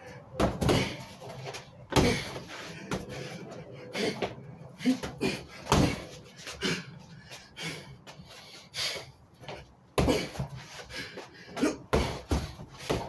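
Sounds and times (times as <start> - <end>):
punches on punching bag: 0.4 - 1.0, 1.9 - 3.0, 5.0 - 6.1, 11.9 - 13.0.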